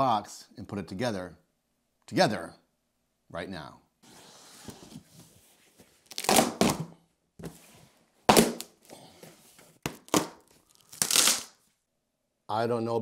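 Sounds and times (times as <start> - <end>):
packing tape ripping: 6.0 - 6.8, 9.9 - 11.6.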